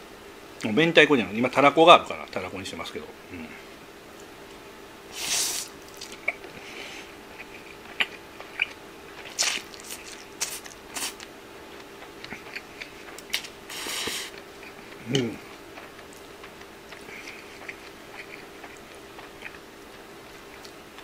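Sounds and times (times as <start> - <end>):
wet chewing: 5.2 - 21.0
person slurping spaghetti: 13.7 - 14.4.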